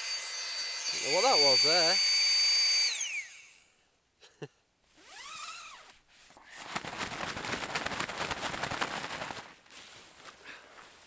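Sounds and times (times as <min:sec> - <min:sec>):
air pump motor whine: 0:00.0 - 0:03.8
nylon fabric rustling: 0:05.0 - 0:11.0.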